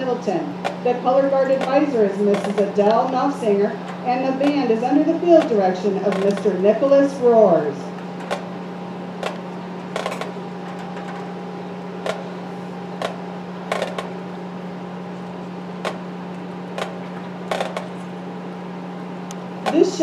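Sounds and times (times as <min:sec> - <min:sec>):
electrical hum: 0:00.0 - 0:20.0
sharp clicks: 0:05.4 - 0:06.5.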